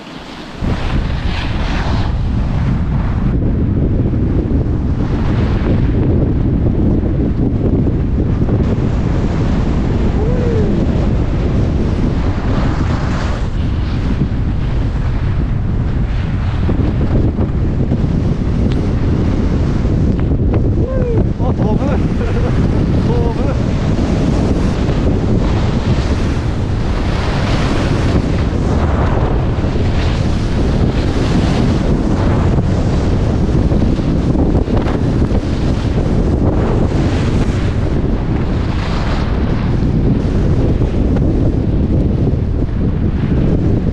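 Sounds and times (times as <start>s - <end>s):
skis sliding on snow: 0.0s - 2.6s
wind buffeting microphone: 0.0s - 43.9s.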